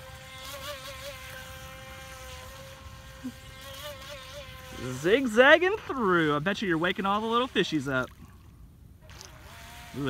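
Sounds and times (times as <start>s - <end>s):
electric boat motor whining: 0.0s - 7.9s.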